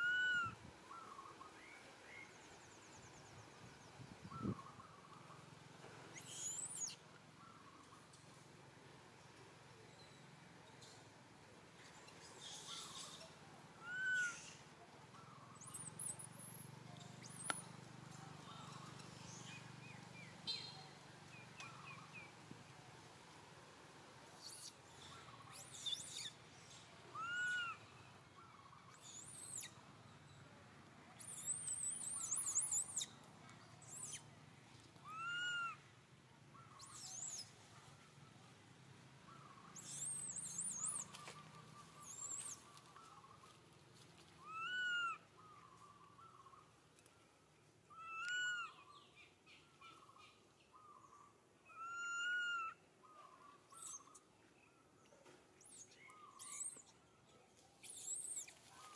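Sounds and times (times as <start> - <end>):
baby monkey whimpering coos: 27.2 - 27.8, 35.1 - 35.8, 44.4 - 45.2, 47.9 - 48.7, 51.7 - 52.7
high warbling bird chirps: 57.8 - 58.6.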